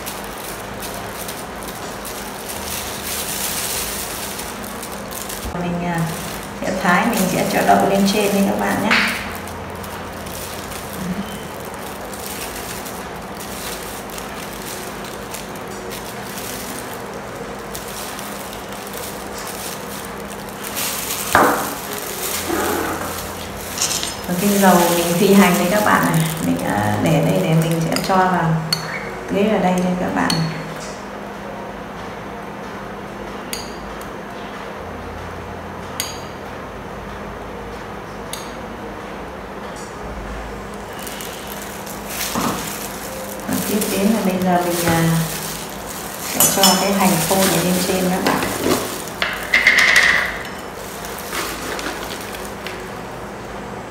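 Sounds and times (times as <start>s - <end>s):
steady background hum: 0.0s - 53.9s
spoon clinking on ceramic bowls: 46.3s - 47.6s.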